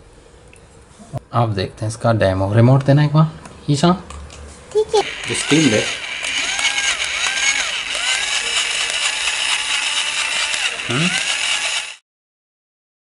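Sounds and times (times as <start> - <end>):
steady electric buzz: 5.0 - 12.0
toy electronic calls: 5.0 - 12.0.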